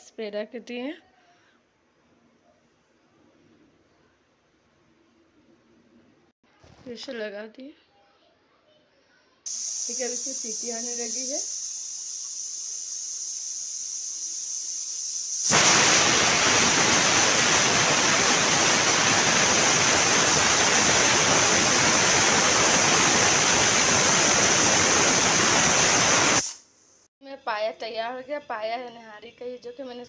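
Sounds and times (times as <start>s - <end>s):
pressure cooker whistle hissing steam: 9.5s - 26.7s.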